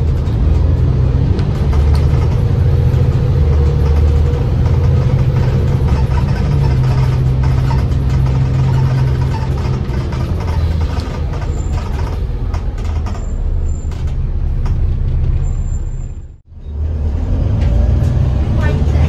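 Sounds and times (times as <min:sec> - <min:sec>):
bus diesel engine droning: 0:00.0 - 0:19.0.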